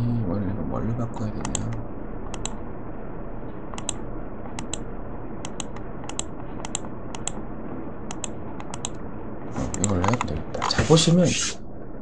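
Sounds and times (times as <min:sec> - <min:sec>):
steady background hiss: 0:00.0 - 0:12.0
computer mouse clicks: 0:01.4 - 0:02.6, 0:03.7 - 0:04.8, 0:05.4 - 0:07.4, 0:08.1 - 0:09.0, 0:09.7 - 0:10.8.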